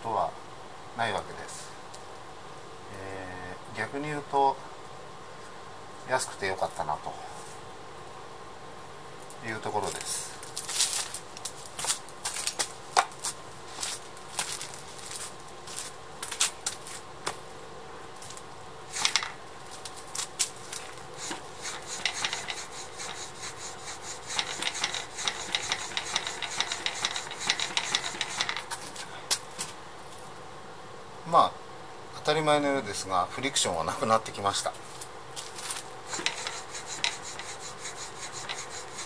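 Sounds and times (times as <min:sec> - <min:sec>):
suspension fork rubbing and clicking: 0:20.7 - 0:28.9, 0:35.6 - 0:39.0.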